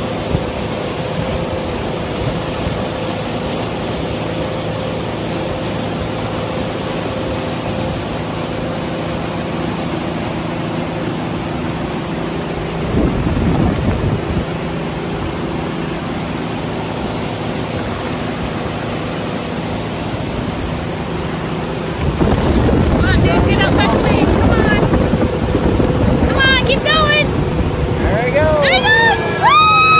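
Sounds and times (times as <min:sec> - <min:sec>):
motorboat engine running: 0:00.0 - 0:29.9
wake water rushing: 0:00.0 - 0:29.9
wind rushing: 0:12.7 - 0:14.8, 0:20.2 - 0:29.5.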